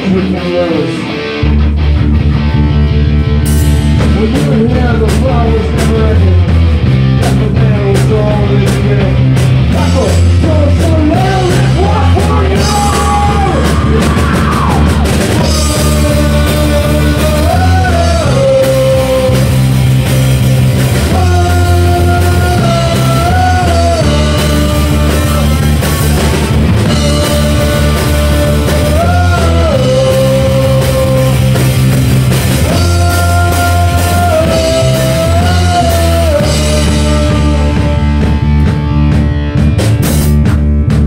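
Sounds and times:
rock band playing live: 0.0s - 41.0s
person singing: 4.0s - 6.6s, 7.2s - 19.8s, 20.9s - 38.8s.

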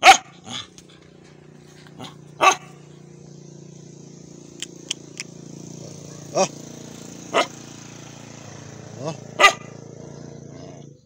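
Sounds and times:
dog barking: 0.0s - 0.7s, 2.0s - 2.8s, 6.1s - 6.5s, 7.3s - 7.6s, 9.0s - 9.8s
steady low hum: 0.0s - 11.0s.

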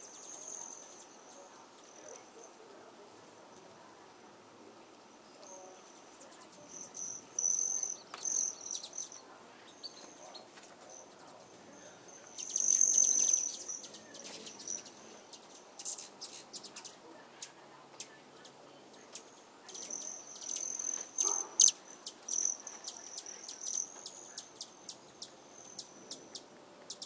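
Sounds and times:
insects trilling: 5.1s - 17.0s, 19.1s - 27.0s.

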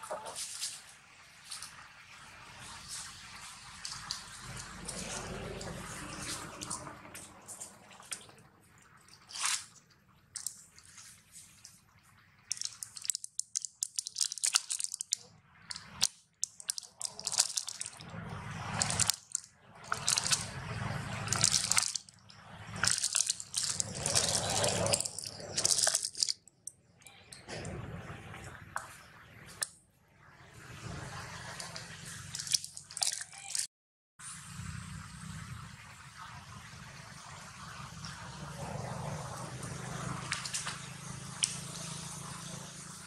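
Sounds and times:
small wet clicks and crackles: 0.1s - 27.8s, 31.2s - 33.7s, 38.0s - 42.2s.

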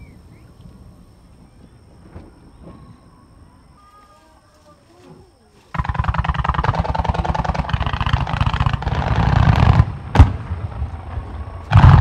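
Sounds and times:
fireworks popping and banging: 5.7s - 12.0s
loud firework boom: 6.6s - 12.0s.

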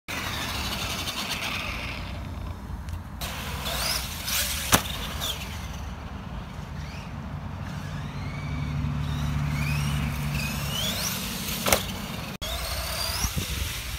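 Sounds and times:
toy truck motor whining: 0.1s - 2.6s, 3.2s - 13.9s
toy truck landing crack: 3.7s - 5.6s, 10.7s - 12.0s.

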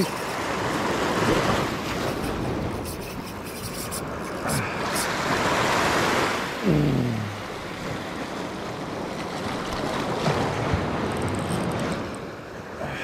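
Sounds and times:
sea surf breaking over rocks: 0.0s - 2.7s, 4.1s - 13.0s
sharp ticks: 2.1s - 4.5s
man grunting: 6.6s - 7.4s.

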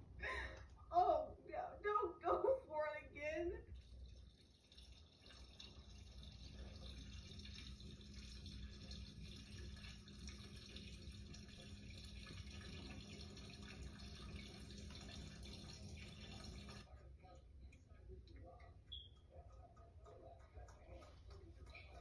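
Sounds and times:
faucet running into steel sink: 3.7s - 16.9s.

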